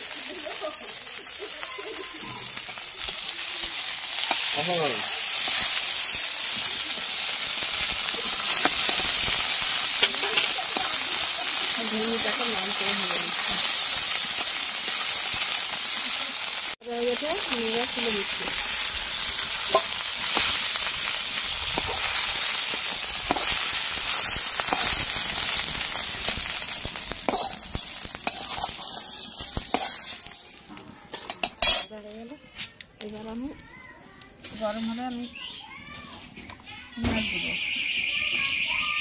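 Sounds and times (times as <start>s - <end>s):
food sizzling in hot oil: 0.0s - 35.1s
utensils clattering: 24.2s - 32.1s
stirring utensil clinking: 31.1s - 32.0s.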